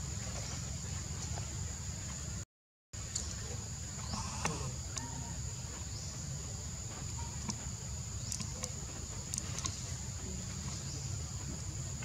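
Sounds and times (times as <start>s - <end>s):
faint clicks: 7.4s - 10.0s.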